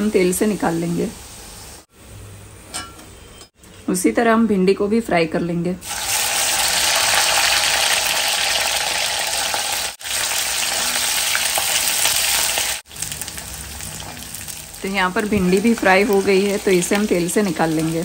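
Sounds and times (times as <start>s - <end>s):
okra deep-frying in hot oil: 0.0s - 2.1s, 5.8s - 18.0s.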